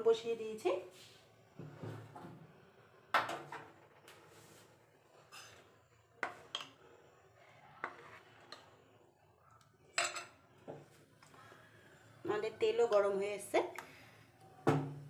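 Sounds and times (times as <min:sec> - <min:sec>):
kitchen utensils and dishes clinking: 0:10.0 - 0:10.4.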